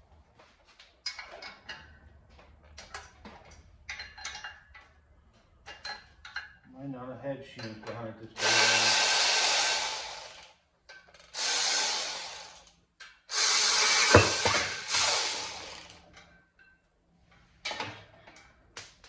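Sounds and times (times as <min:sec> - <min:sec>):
power tool spinning off bolts: 0:08.4 - 0:10.6, 0:11.2 - 0:16.0
sharp metal clank: 0:14.1 - 0:15.0.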